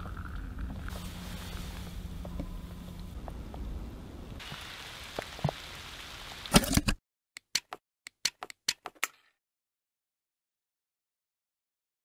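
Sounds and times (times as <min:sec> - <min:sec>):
faint outdoor hiss: 0:00.0 - 0:06.6.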